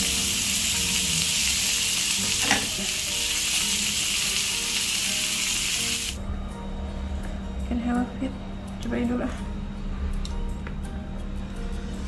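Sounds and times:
food sizzling in hot oil: 0.0 - 6.2.

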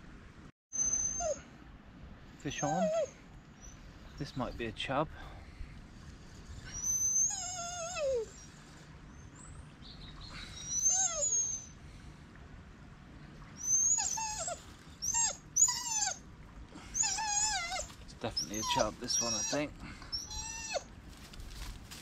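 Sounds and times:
dog whining: 0.7 - 1.5, 2.5 - 3.8, 6.7 - 8.6, 10.4 - 11.8, 13.6 - 16.2, 16.8 - 20.9.

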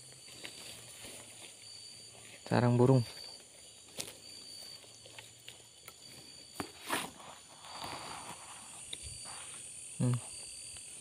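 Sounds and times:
twigs clicking: 0.0 - 1.6, 3.2 - 6.7
brush rustling: 0.0 - 11.0
insects trilling: 0.0 - 11.0.

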